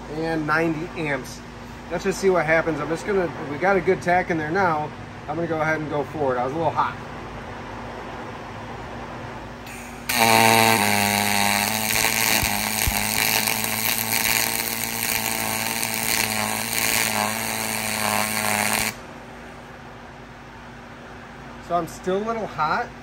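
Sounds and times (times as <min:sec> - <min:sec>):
welding arc buzzing and crackling: 0:09.6 - 0:19.0.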